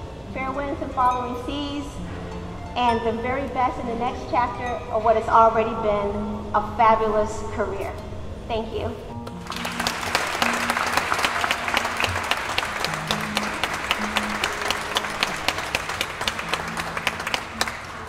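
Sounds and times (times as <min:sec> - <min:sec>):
music playing: 0:00.0 - 0:07.2, 0:08.1 - 0:18.0
audience applauding: 0:09.3 - 0:18.0.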